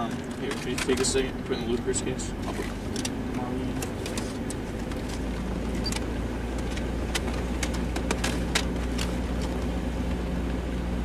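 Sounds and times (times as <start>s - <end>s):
engine and road rumble: 0.0s - 11.0s
steady engine hum: 0.0s - 11.0s
small clicks and knocks: 3.8s - 9.6s.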